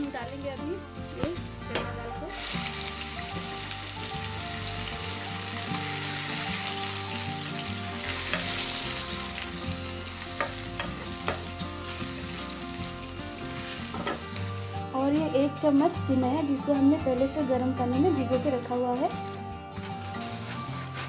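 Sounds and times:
spices sizzling in hot oil: 0.0s - 14.8s, 18.1s - 21.0s.

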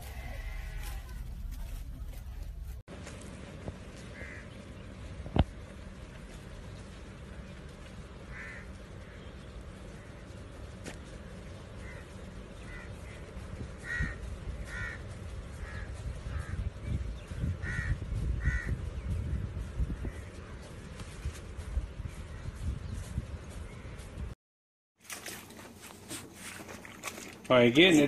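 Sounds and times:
crows cawing: 4.1s - 4.6s, 8.2s - 10.3s, 11.8s - 20.6s.

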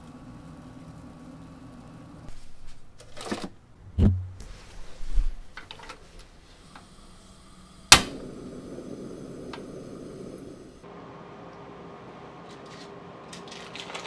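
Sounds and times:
gas burner hissing: 4.6s - 10.9s
stove igniter click: 7.9s - 8.3s.

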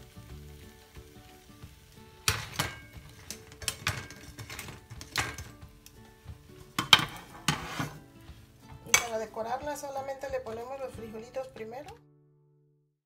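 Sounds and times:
soft background music: 0.0s - 12.6s
metal tongs clattering on dishes: 2.3s - 5.6s, 6.8s - 8.0s.

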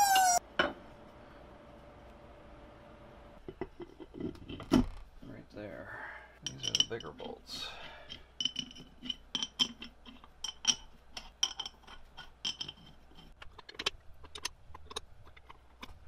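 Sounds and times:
bolts clinking on metal cover: 6.4s - 7.4s.

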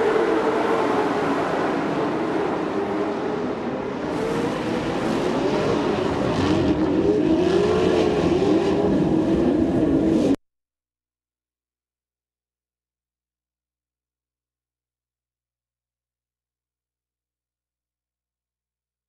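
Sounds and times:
truck engines revving: 0.0s - 10.4s.

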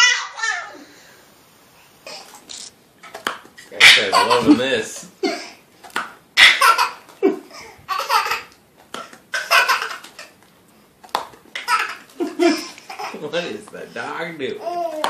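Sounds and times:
baby belly-laughing: 3.8s - 5.6s, 6.4s - 10.4s, 11.6s - 13.3s.

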